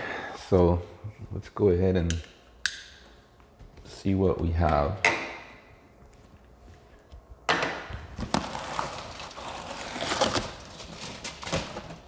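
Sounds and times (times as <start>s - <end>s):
cardboard rustling and scraping: 8.2s - 12.0s.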